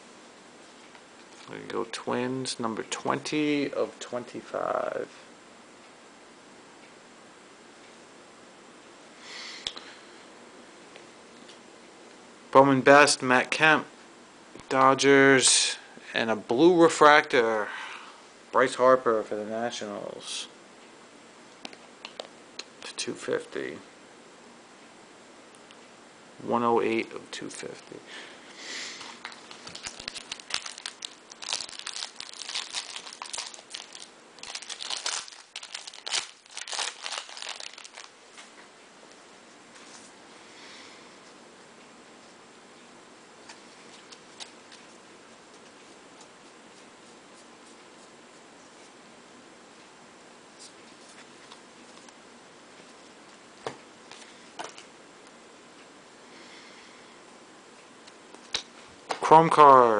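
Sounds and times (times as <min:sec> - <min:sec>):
foil wrapper crinkling and tearing: 0:29.2 - 0:38.1.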